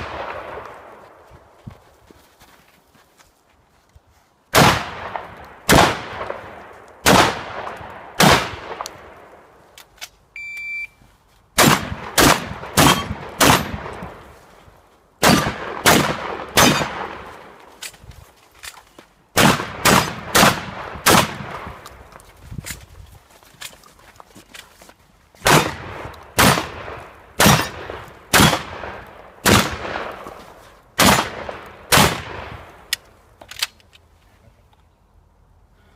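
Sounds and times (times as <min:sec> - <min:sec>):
shotgun shots with echo: 0:04.6 - 0:06.4, 0:07.0 - 0:08.8, 0:11.6 - 0:13.9, 0:15.2 - 0:17.2, 0:19.4 - 0:21.7, 0:25.5 - 0:30.1, 0:31.0 - 0:32.5.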